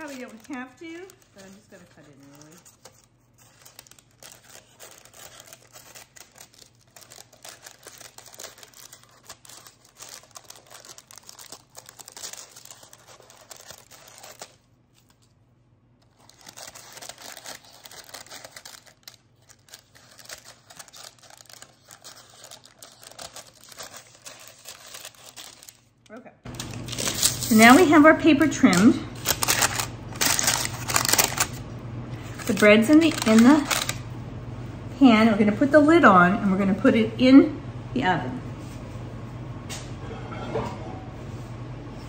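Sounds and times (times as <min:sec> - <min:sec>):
scissors cutting paper: 0:00.0 - 0:14.6, 0:16.0 - 0:25.8, 0:28.6 - 0:31.6, 0:32.4 - 0:34.0
stiff paper crinkling: 0:00.0 - 0:15.4, 0:16.0 - 0:31.6, 0:32.2 - 0:34.0.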